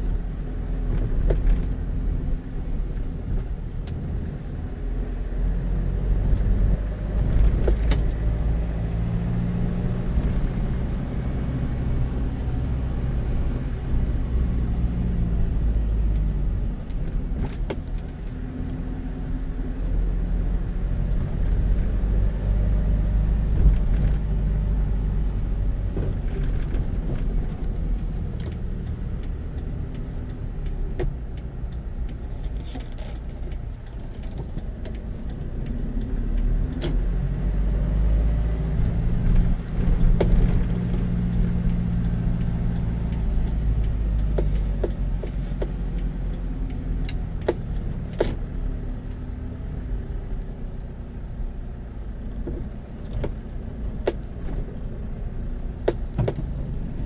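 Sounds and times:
car engine and tyres rumbling: 0:00.0 - 0:57.0
light rattling clicks: 0:26.1 - 0:37.2, 0:38.7 - 0:50.9.

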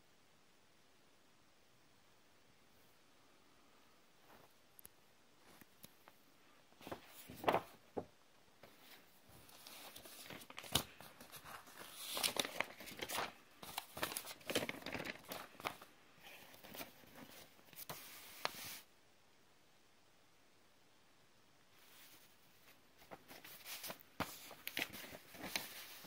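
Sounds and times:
paper leaflets rustling: 0:06.8 - 0:18.8, 0:21.8 - 0:26.0.

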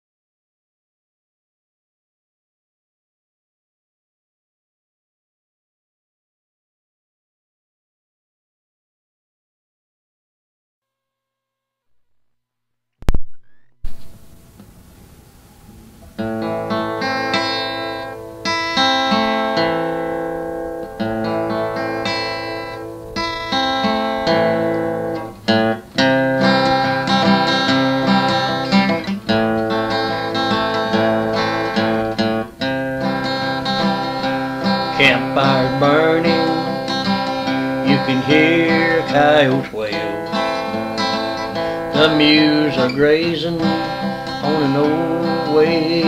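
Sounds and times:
faint hiss: 0:13.3 - 0:46.0
strummed acoustic guitar: 0:13.9 - 0:46.0.

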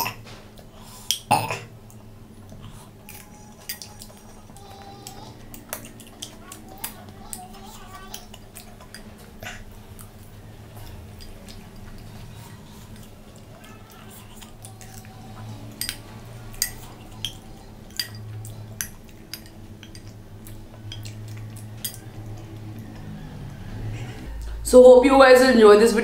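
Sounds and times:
faint low hum: 0:00.0 - 0:26.0
wet chewing and lip smacks: 0:05.4 - 0:15.2, 0:15.8 - 0:23.6.

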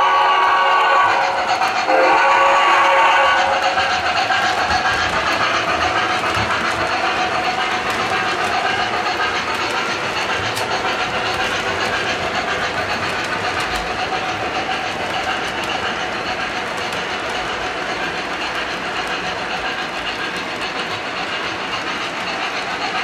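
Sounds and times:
locomotive whistle: 0:00.0 - 0:06.7
model train wheels clattering: 0:00.1 - 0:23.0.

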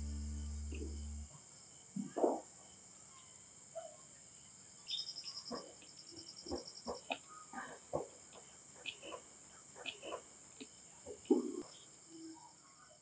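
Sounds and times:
low sustained music note: 0:00.0 - 0:01.4
crickets humming: 0:00.0 - 0:12.5
cricket pulsing chirp: 0:00.0 - 0:13.0.

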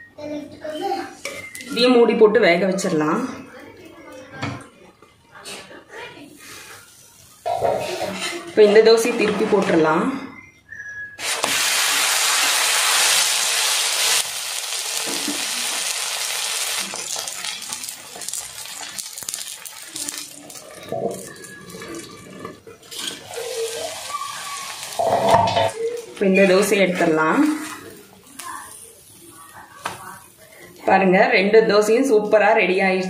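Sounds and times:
food sizzling on hot iron griddle: 0:11.2 - 0:21.6, 0:22.9 - 0:26.0, 0:27.4 - 0:30.6.

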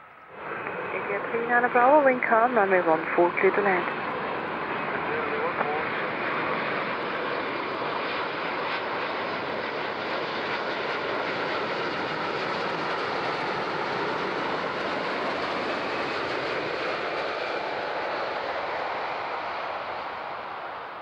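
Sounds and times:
jet airliner passing low: 0:00.0 - 0:21.0.

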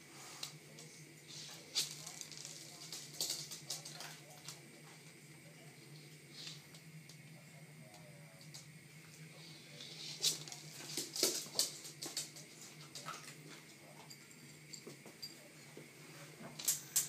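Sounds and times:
dog claws clicking on floor: 0:01.7 - 0:04.6, 0:10.2 - 0:14.2.

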